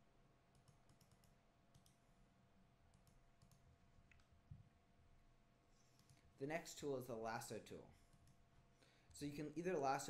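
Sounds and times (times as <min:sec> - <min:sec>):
faint computer mouse clicks: 0:00.5 - 0:02.0.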